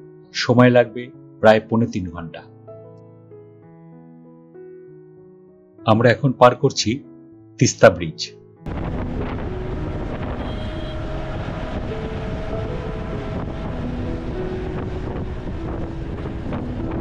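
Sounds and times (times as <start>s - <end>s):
quiet background music: 0.0s - 17.0s
car road noise: 8.7s - 17.0s
wind rushing over microphone: 8.7s - 17.0s.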